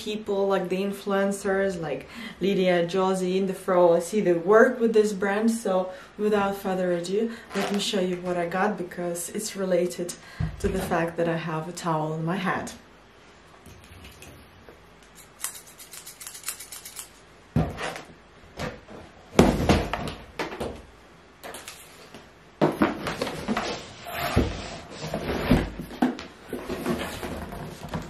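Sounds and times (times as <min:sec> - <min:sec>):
cardboard box bumps and scrapes: 0:22.6 - 0:28.0.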